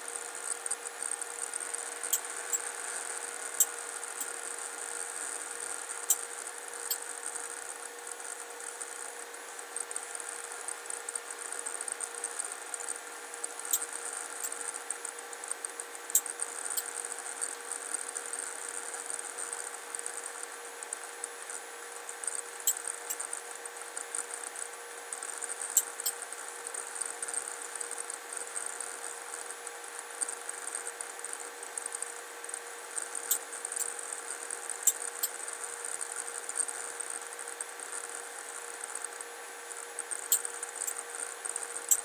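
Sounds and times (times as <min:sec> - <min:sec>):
faint hum and high hiss: 0:00.0 - 0:42.0
sharp clicks: 0:22.6 - 0:23.3.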